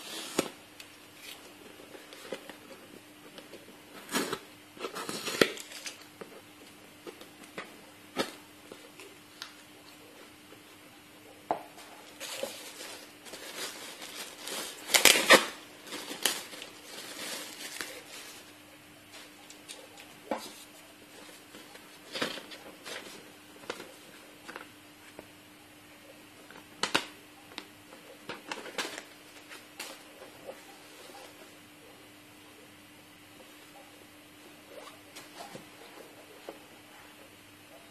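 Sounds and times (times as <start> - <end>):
faint steady hum: 0.0 - 37.9
objects being handled: 11.4 - 24.7.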